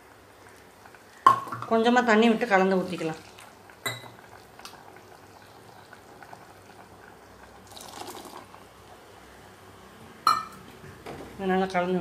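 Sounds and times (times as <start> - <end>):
faint steady hiss: 0.0 - 12.0
liquid splashing into pot: 7.6 - 8.6.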